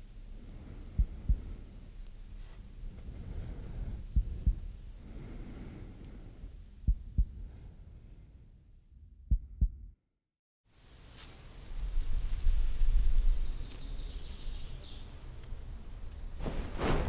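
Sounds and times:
heartbeat thumps: 0.9 - 1.6, 3.9 - 4.8, 6.8 - 7.6, 9.2 - 10.0.

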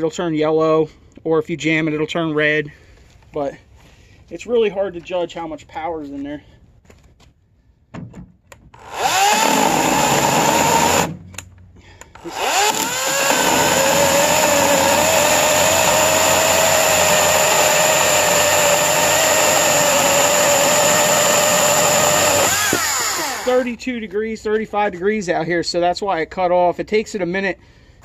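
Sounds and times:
electric chainsaw cutting wood: 8.8 - 11.2, 12.2 - 23.7.

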